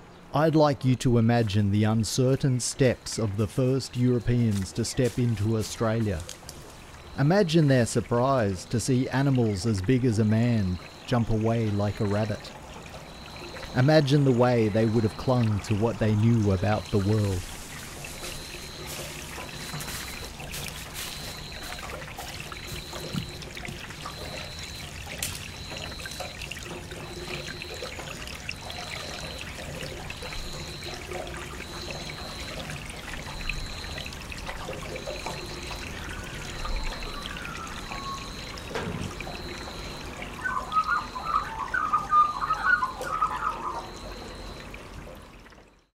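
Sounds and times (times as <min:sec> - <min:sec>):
water trickling: 0:00.0 - 0:45.9
chattering high calls: 0:40.3 - 0:44.2.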